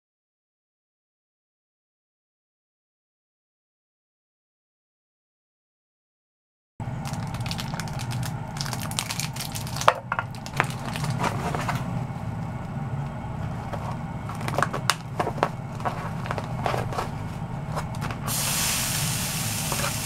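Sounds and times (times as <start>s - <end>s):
steady low hum: 6.8s - 20.0s
plastic wrap and foam tray crinkling: 7.0s - 11.9s, 13.4s - 18.4s.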